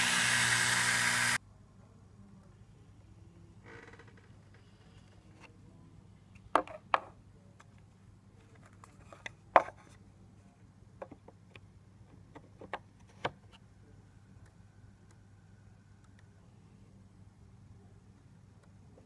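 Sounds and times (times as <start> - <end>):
low steady hum: 13.5 - 19.0.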